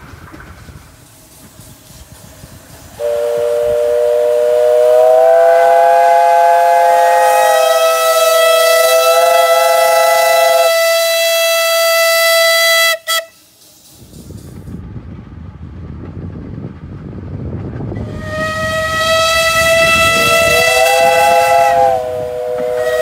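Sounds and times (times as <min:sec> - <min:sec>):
steam locomotive whistles chord: 0:02.9 - 0:13.5, 0:18.0 - 0:23.0.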